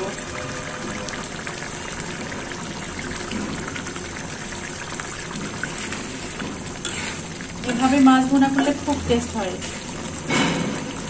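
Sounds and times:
thick curry bubbling: 0:00.0 - 0:11.0.

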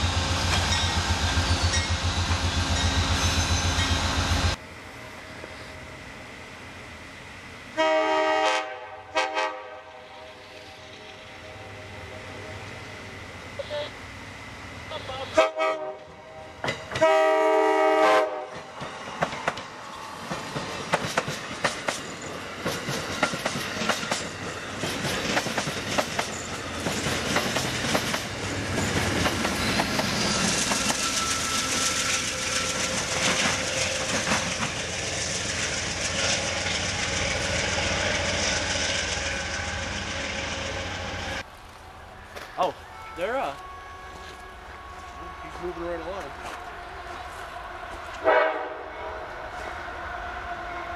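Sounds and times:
passing train rush and hiss: 0:00.0 - 0:50.9
train horn blasts: 0:07.7 - 0:12.6, 0:15.3 - 0:18.6, 0:42.9 - 0:50.9
train wheels clicking over rails: 0:16.6 - 0:17.2, 0:18.4 - 0:42.6.

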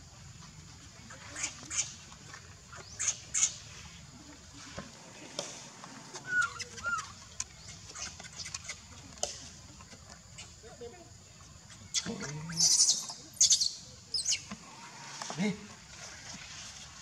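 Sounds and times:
baby monkey squealing: 0:06.2 - 0:07.1, 0:12.5 - 0:14.4.

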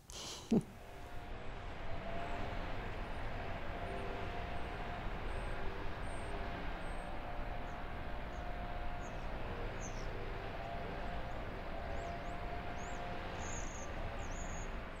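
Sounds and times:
distant traffic hum: 0:00.1 - 0:15.0
small birds chirping: 0:05.2 - 0:10.1, 0:11.0 - 0:14.8.

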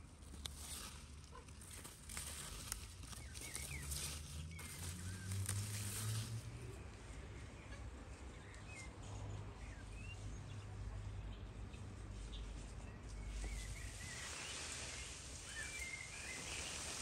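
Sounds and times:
leaves rustling: 0:00.0 - 0:08.4, 0:12.1 - 0:17.0
birds chirping: 0:03.0 - 0:06.0, 0:13.2 - 0:17.0.

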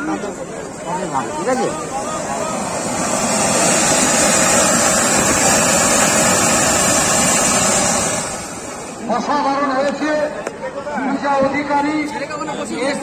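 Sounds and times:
firework fountain hissing: 0:00.1 - 0:09.7.

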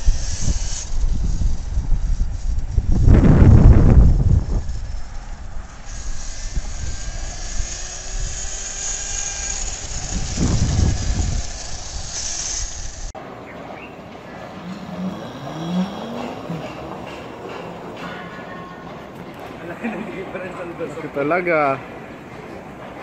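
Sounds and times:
electric motorcycle whine: 0:00.0 - 0:13.2, 0:14.5 - 0:16.8
wind rumble on microphone: 0:00.0 - 0:13.2
street noise: 0:00.0 - 0:23.0.

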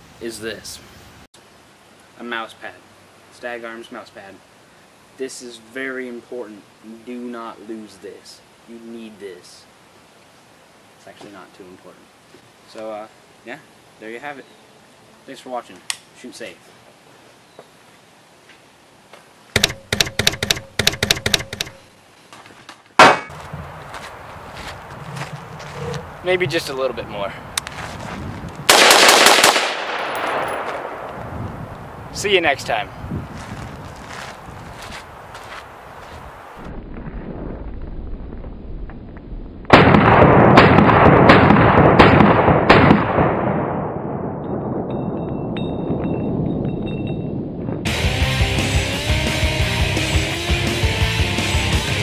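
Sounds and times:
sharp ringing knocks: 0:19.6 - 0:21.8
rifle shot: 0:23.0 - 0:23.3, 0:28.7 - 0:31.2, 0:39.7 - 0:44.6.

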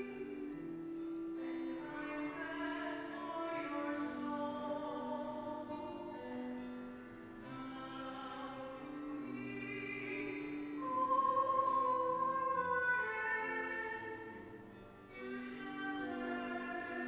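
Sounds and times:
solo operatic voice singing: 0:07.7 - 0:14.4, 0:15.2 - 0:17.0.

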